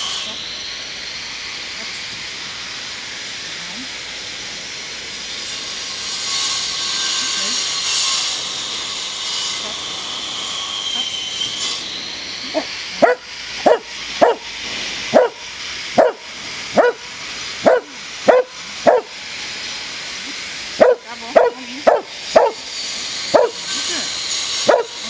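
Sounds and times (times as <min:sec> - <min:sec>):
dog barking: 0:12.5 - 0:14.5, 0:15.1 - 0:15.4, 0:16.0 - 0:19.1, 0:20.8 - 0:22.7, 0:23.3 - 0:23.7, 0:24.6 - 0:25.0.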